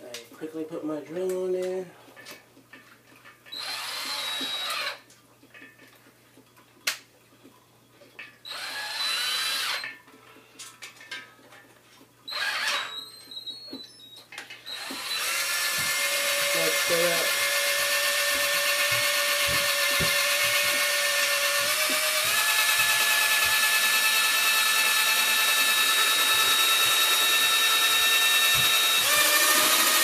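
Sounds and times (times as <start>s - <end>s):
electric drill spinning: 3.5s - 5.0s, 8.5s - 9.9s, 12.3s - 14.0s, 14.6s - 30.0s.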